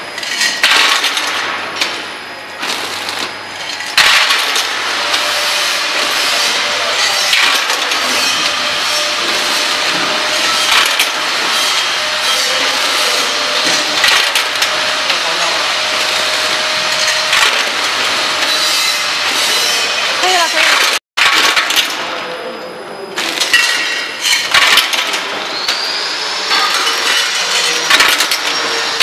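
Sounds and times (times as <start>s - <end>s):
packing machine clattering: 2.6s - 22.0s, 26.5s - 29.0s.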